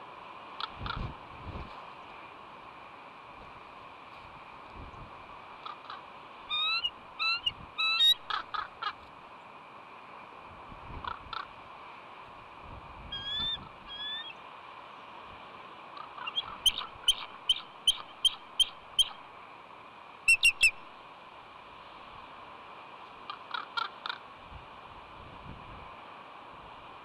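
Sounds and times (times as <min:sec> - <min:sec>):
eagle piping calls: 0:05.6 - 0:08.7, 0:13.1 - 0:14.4, 0:16.0 - 0:19.2, 0:20.3 - 0:20.8.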